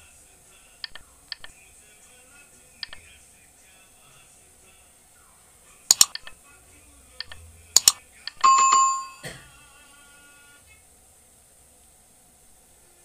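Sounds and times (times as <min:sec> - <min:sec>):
mouse clicks: 0:00.8 - 0:01.5, 0:05.9 - 0:06.3, 0:07.2 - 0:08.4
bell-like ding: 0:08.4 - 0:09.4.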